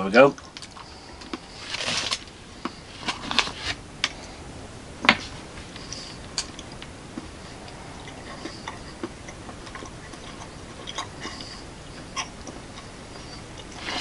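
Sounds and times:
chewing hard chocolate: 5.8 - 14.0.

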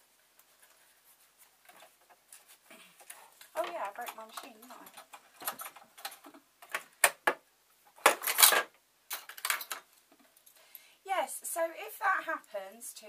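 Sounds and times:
metal parts clattering: 8.0 - 9.9
small metal parts clicking: 8.1 - 10.5.

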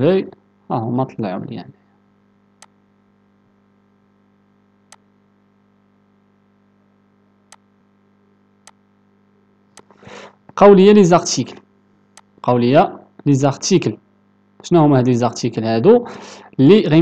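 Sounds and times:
faint steady hum: 0.0 - 17.0
computer mouse clicks: 4.9 - 5.1.

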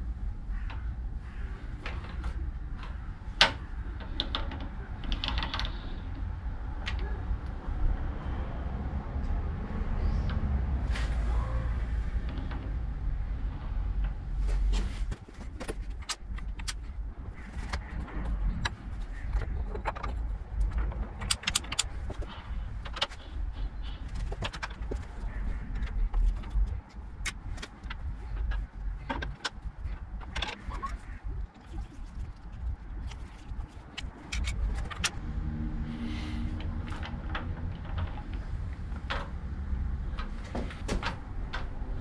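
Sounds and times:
low rumble: 5.7 - 40.5.

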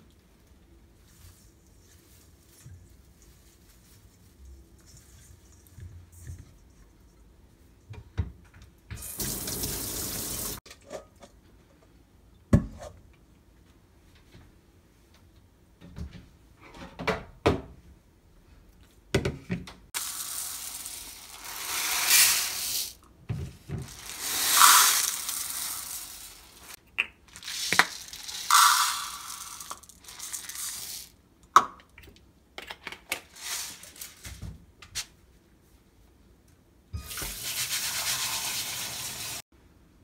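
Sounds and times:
rice grains pouring into bowl: 20.0 - 23.0, 23.8 - 31.1.

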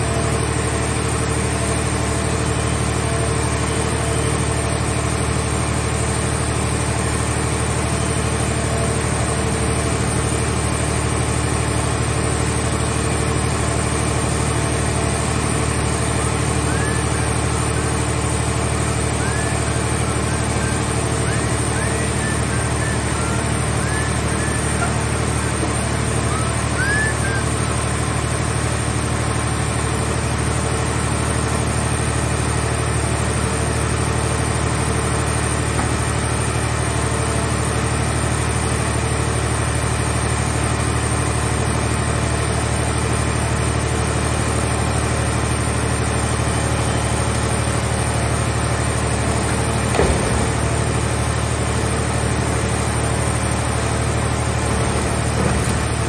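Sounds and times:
hydraulic power unit droning: 0.0 - 56.0.

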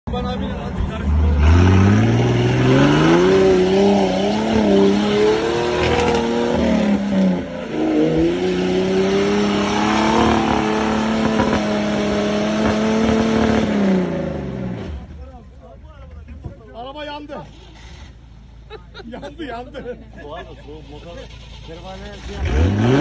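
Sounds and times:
off-road vehicle engine revving: 0.3 - 15.2, 21.2 - 23.0.

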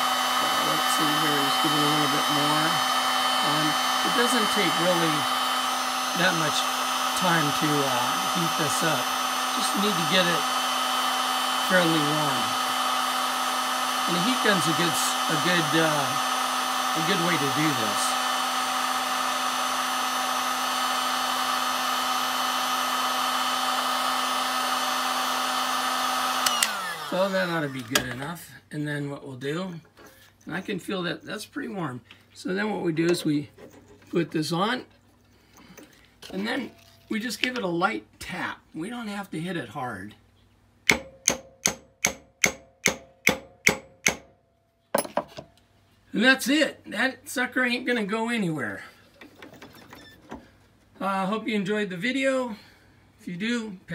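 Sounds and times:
heat gun fan humming: 0.0 - 29.0, 29.6 - 38.2, 40.8 - 44.3, 45.0 - 53.8
hammer tapping on metal: 40.9 - 44.3.

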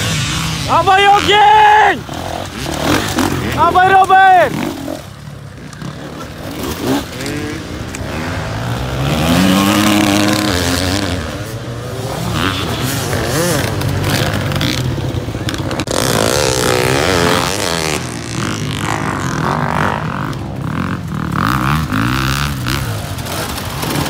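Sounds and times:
dirt bike engines revving: 0.0 - 24.0.

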